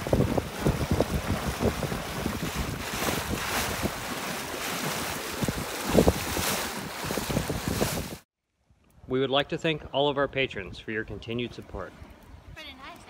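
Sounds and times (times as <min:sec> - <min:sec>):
water rushing along boat hull: 0:00.0 - 0:08.2
wind buffeting microphone: 0:00.0 - 0:08.2, 0:08.9 - 0:13.0.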